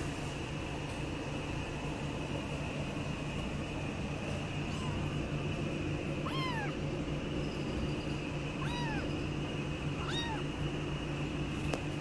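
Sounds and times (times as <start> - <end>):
steady background hum: 0.0 - 12.0
kitten meowing: 4.6 - 5.3, 6.2 - 6.8, 8.5 - 9.3, 10.0 - 10.5.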